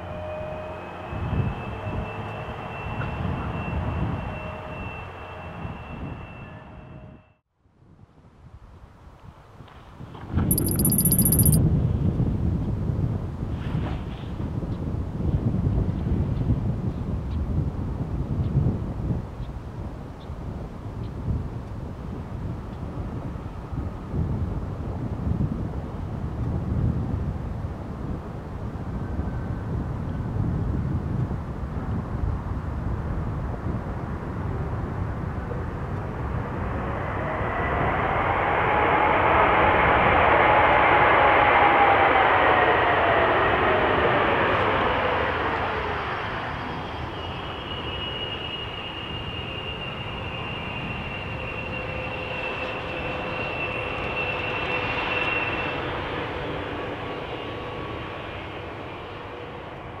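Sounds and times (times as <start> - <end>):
jet engine whine: 35.3 - 60.0.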